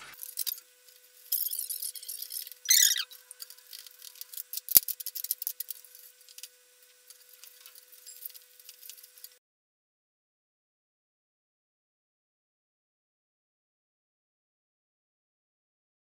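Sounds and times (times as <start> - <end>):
wires rustling and ticking: 0.2 - 9.4.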